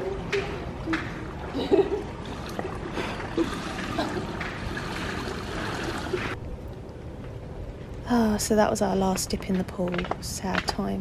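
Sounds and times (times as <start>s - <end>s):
pool water lapping: 0.0s - 6.4s
swimming strokes splashing: 2.1s - 6.4s.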